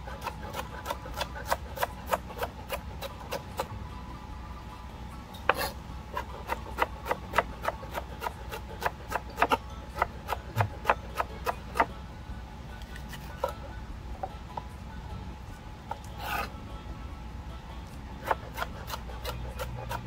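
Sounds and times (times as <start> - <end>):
knife chopping on plastic board: 0.2 - 3.7, 5.5 - 11.9, 18.2 - 20.0.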